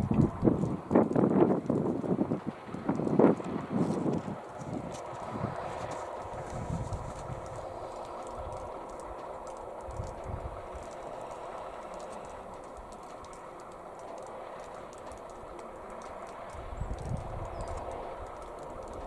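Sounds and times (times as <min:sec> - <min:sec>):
wind buffeting the microphone: 0:00.0 - 0:13.7, 0:14.8 - 0:19.0
drone propellers humming: 0:00.0 - 0:19.0
faint clicks: 0:00.0 - 0:19.0.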